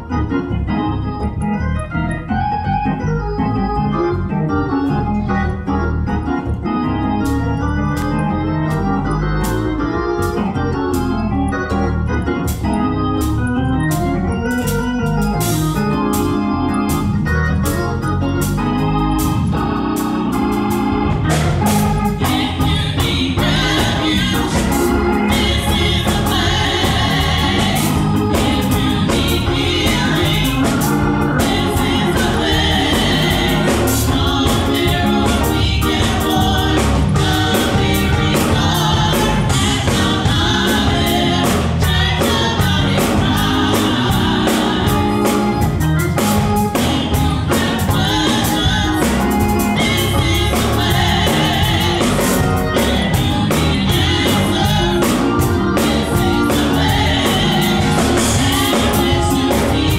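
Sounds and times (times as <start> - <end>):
gospel organ music: 0.0 - 59.9
steady beat of sharp hits: 19.2 - 59.9
women singing: 22.1 - 59.9.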